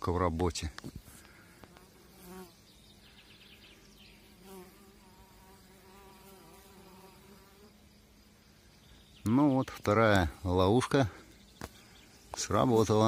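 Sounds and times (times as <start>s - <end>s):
honeybees buzzing faintly: 0.1s - 13.0s
bee flying close by: 1.6s - 2.6s, 3.9s - 7.8s.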